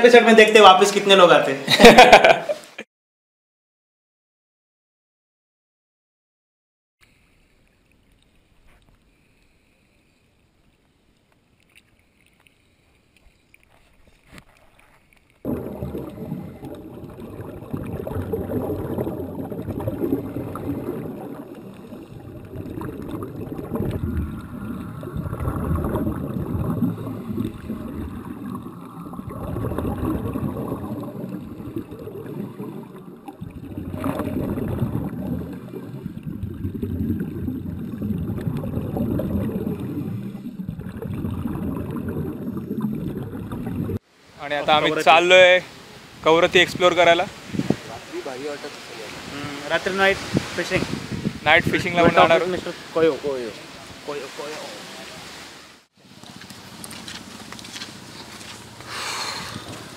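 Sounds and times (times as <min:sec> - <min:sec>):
underwater rushing and gurgling: 0:11.5 - 0:57.0, 0:58.0 - 0:59.9
exhaled bubbles streaming: 0:15.4 - 0:44.0
divers breathing through regulators: 0:58.8 - 0:59.9.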